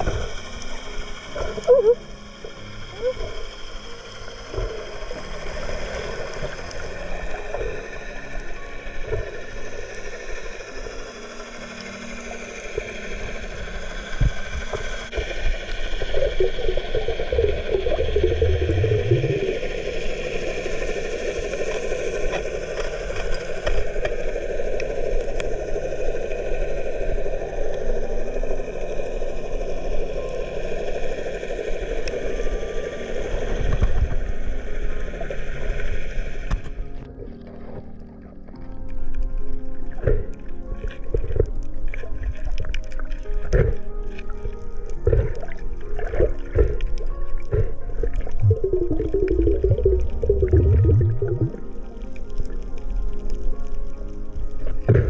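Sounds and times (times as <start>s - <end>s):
underwater rush and rumble: 0.0s - 55.0s
rising low hum: 11.0s - 20.5s, 45.0s - 51.9s.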